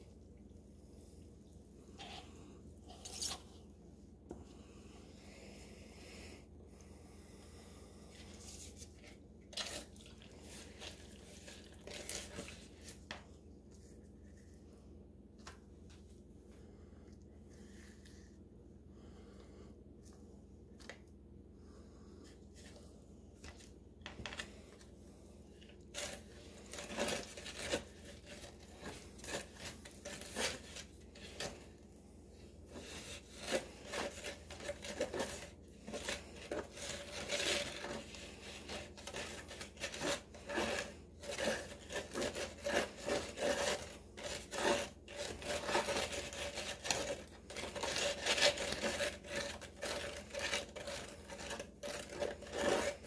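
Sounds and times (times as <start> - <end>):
stirrer scraping plastic cup: 1.9 - 3.5, 8.0 - 14.4, 25.6 - 53.0.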